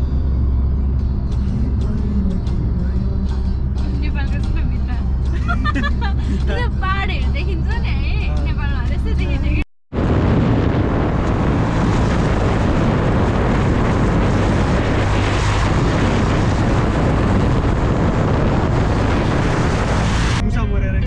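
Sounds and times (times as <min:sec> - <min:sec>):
tyre and road noise: 0:00.0 - 0:20.6
wind rushing over microphone: 0:07.6 - 0:20.5.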